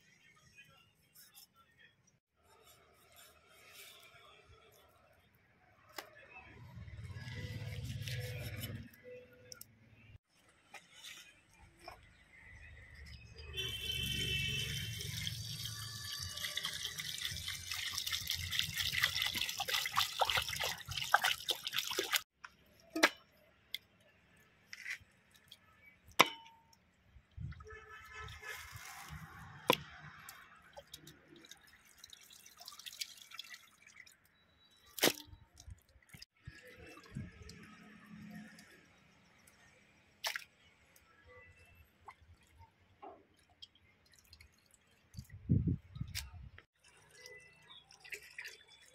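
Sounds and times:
light splashes of rinsing: 0:13.8 - 0:22.3, 0:27.5 - 0:48.9
water pouring into steel bowl: 0:14.6 - 0:22.2, 0:30.2 - 0:34.2, 0:46.8 - 0:48.9.

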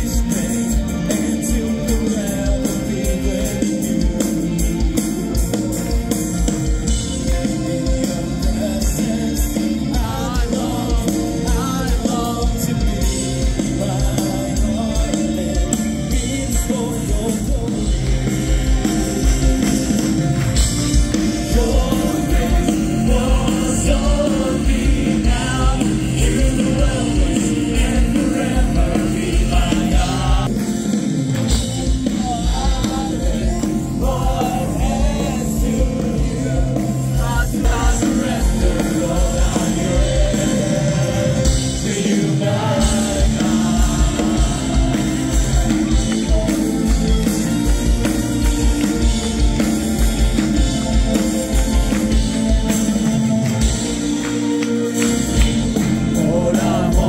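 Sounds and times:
person singing through loudspeakers: 0:00.0 - 0:04.9, 0:07.2 - 0:18.9, 0:21.3 - 0:30.5, 0:32.0 - 0:47.3, 0:55.9 - 0:57.0
worship band playing: 0:00.0 - 0:57.0.

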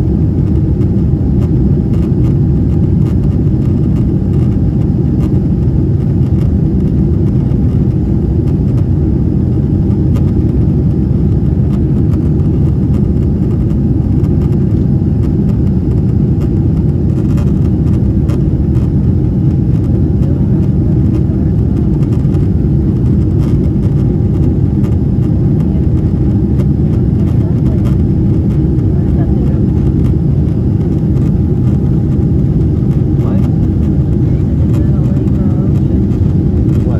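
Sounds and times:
jet engines roaring: 0:00.0 - 0:36.9.

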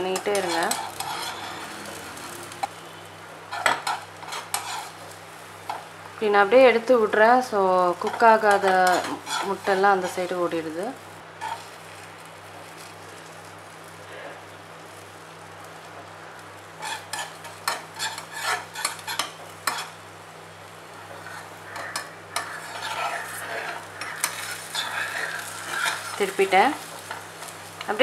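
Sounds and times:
egg frying in oil: 0:00.0 - 0:28.0
spoon scraping a pan: 0:00.1 - 0:02.9, 0:03.5 - 0:05.0, 0:08.0 - 0:10.2, 0:11.4 - 0:11.7, 0:16.8 - 0:20.0, 0:20.9 - 0:27.9.

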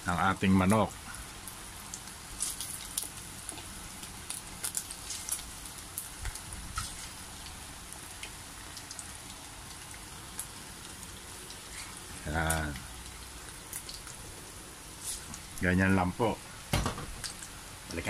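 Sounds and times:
oil sizzling: 0:00.0 - 0:18.0
crackling pops: 0:16.7 - 0:18.0.

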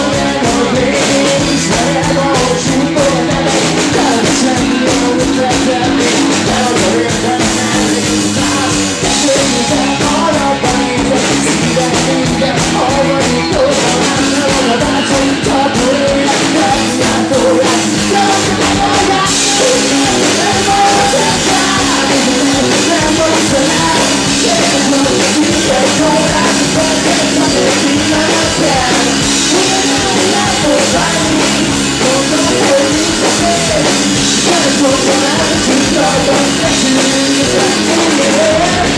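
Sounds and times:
rock band playing: 0:00.0 - 0:38.9.

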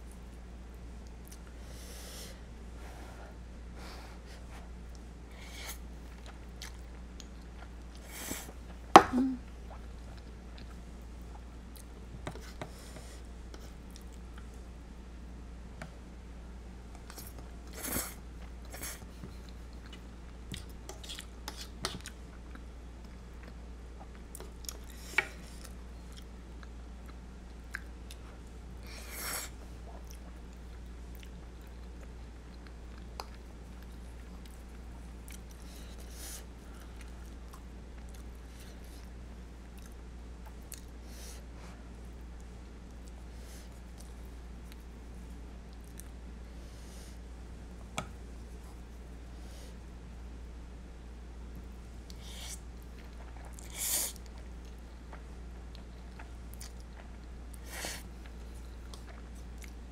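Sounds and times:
quiet chewing: 0:00.0 - 0:01.6, 0:04.4 - 0:08.8, 0:09.5 - 0:14.7, 0:16.9 - 0:46.3, 0:51.5 - 0:59.9
steady low hum: 0:00.0 - 0:59.9.

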